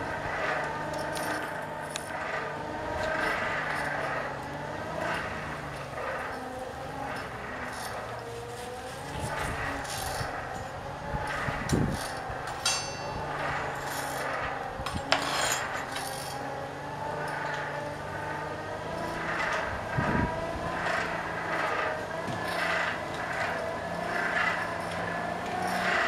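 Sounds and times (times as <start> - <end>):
steady low hum: 0.0 - 26.0
poker clinking and scraping in coals: 11.8 - 16.4
sharp metal clanks: 12.0 - 16.4.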